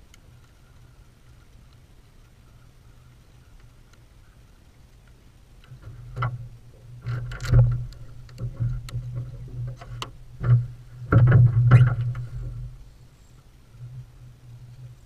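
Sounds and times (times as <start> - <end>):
knocks and thumps on boat hull: 5.8 - 12.8.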